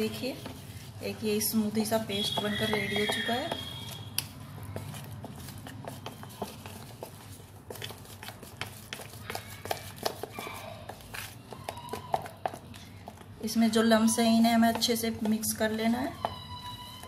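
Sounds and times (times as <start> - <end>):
spoon knocking plastic bowl: 2.1 - 3.8.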